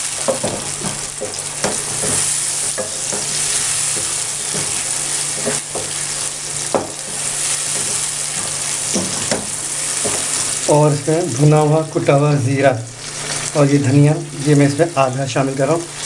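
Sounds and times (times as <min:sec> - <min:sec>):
wooden spoon scraping a pan: 0:00.0 - 0:10.8
chicken sizzling in a pan: 0:00.0 - 0:16.0.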